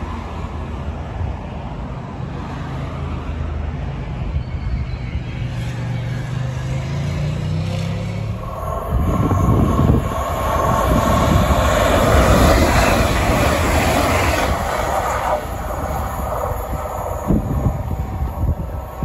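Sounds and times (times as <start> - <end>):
faint steady train whine: 0.0 - 6.9, 8.2 - 19.0
train wheel and air rush: 8.2 - 19.0.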